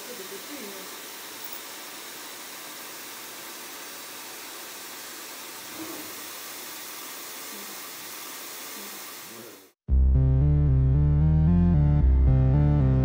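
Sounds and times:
machining centre hissing: 0.0 - 9.8.

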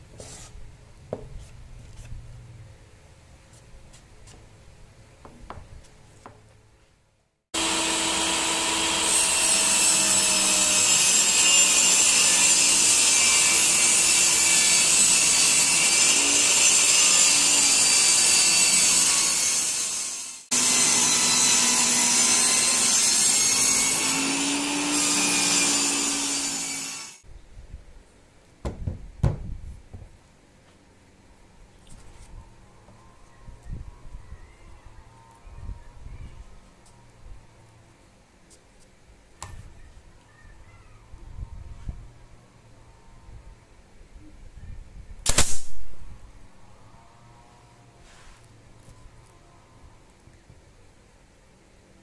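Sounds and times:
table saw cutting plywood: 7.6 - 27.2.

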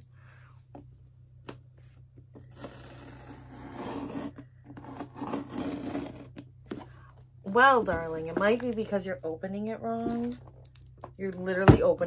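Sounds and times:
opener scraping cardboard box: 2.4 - 6.4.

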